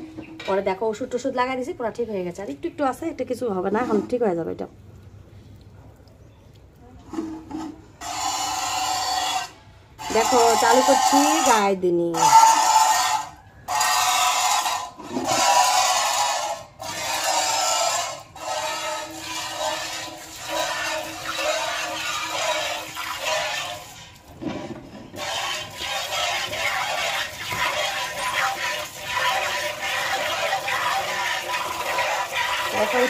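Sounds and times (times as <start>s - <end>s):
milk squirting into steel bowl: 8.0s - 33.0s.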